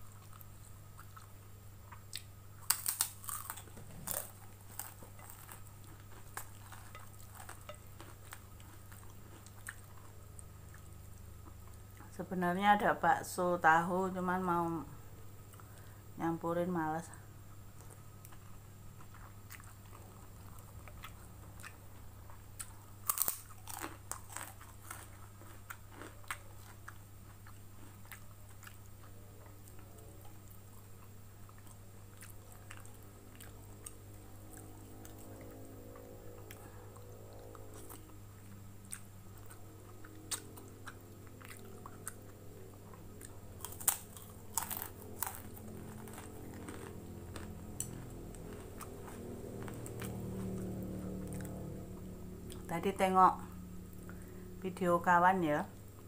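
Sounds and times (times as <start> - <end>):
chewing: 0.0 - 12.2, 17.8 - 51.8
steady low hum: 0.0 - 56.0
cracker crunching: 1.9 - 11.8, 17.8 - 51.7.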